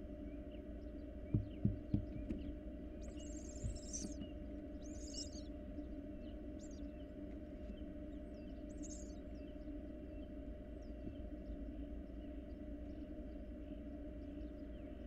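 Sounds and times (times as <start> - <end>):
steady low hum: 0.0 - 15.0
soft thumps on wood: 1.3 - 4.3.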